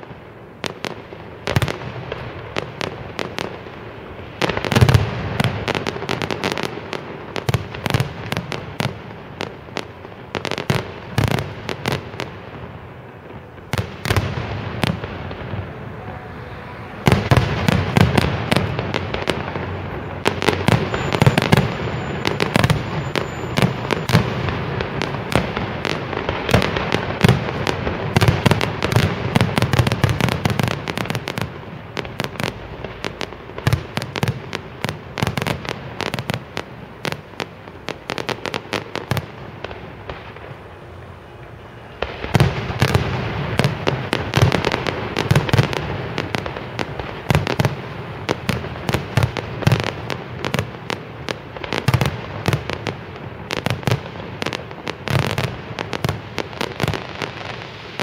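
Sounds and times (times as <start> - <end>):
fireworks bangs and crackling: 0.0 - 58.0.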